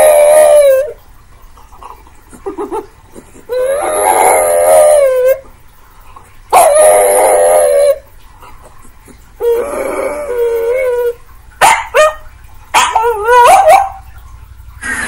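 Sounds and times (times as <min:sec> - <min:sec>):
dog howling: 0:00.0 - 0:01.0, 0:03.5 - 0:05.5, 0:06.5 - 0:08.1, 0:09.4 - 0:14.1.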